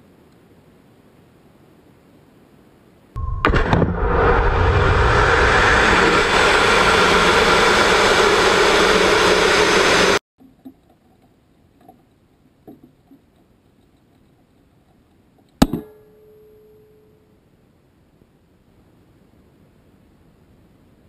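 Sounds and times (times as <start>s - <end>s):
rocket motor roaring: 3.2s - 10.2s
faint ticks and rattles: 10.4s - 15.6s.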